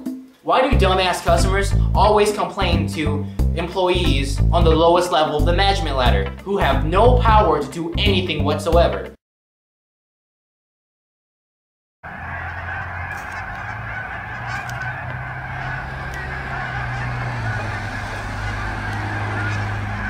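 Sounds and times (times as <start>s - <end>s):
mid-pitched clamour: 12.1s - 20.0s.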